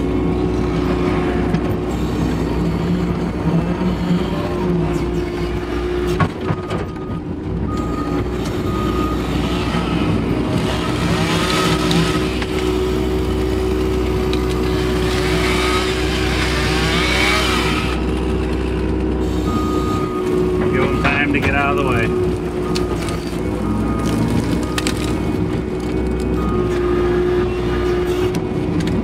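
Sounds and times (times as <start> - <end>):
diesel engine running: 0.0 - 29.0.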